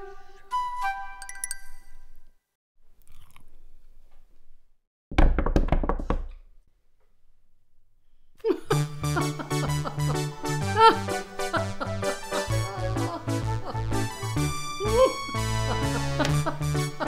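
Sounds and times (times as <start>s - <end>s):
chiming music: 1.0s - 2.3s
faint chewing: 2.9s - 4.3s.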